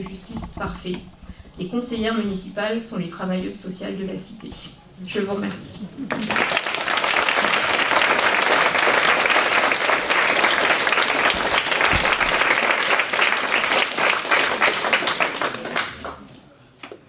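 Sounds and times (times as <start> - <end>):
audience applauding: 6.1 - 16.3.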